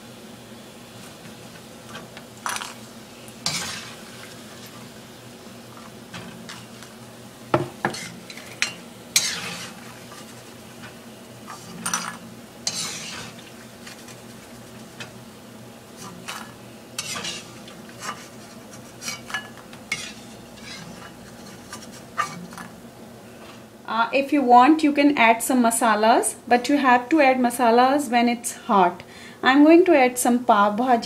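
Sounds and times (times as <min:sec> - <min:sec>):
oil sizzling: 0:00.0 - 0:23.0.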